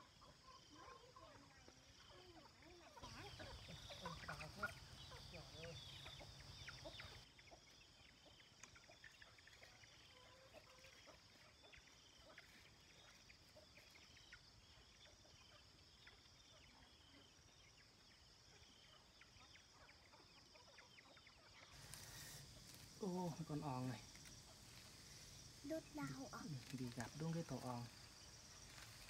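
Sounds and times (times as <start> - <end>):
steady high hiss: 21.7 - 29.0.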